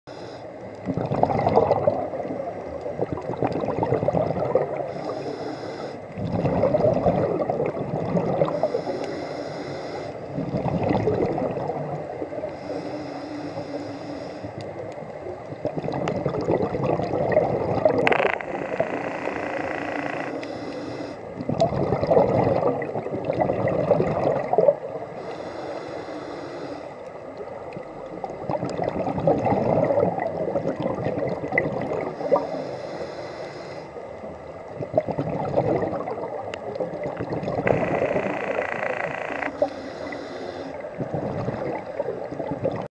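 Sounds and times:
regulator hissing inhale: 0:00.1 - 0:00.6, 0:04.9 - 0:06.1, 0:08.5 - 0:10.3, 0:12.4 - 0:14.7, 0:19.1 - 0:21.4, 0:25.2 - 0:27.1, 0:32.2 - 0:34.0, 0:39.5 - 0:40.9
gurgling exhaled bubbles: 0:00.8 - 0:05.1, 0:06.1 - 0:08.9, 0:10.3 - 0:12.5, 0:14.6 - 0:20.3, 0:21.3 - 0:25.2, 0:27.3 - 0:32.8, 0:34.0 - 0:42.9.

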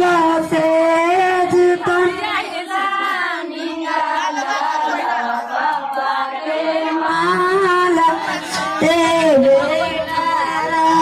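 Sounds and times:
women singing folk song together: 0:00.0 - 0:11.0.

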